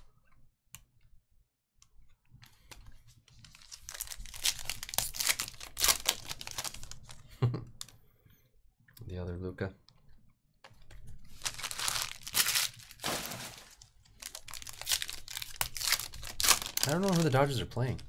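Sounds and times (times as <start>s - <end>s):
foil wrapper crinkling and tearing: 3.4s - 7.2s, 11.3s - 18.0s.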